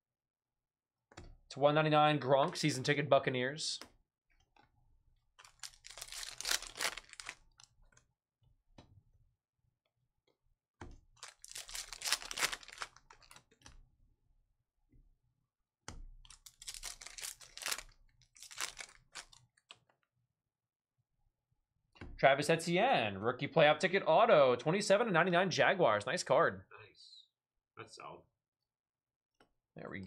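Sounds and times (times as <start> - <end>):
card pack wrappers crinkling and tearing: 5.4 - 7.7, 11.2 - 13.4, 16.3 - 19.4.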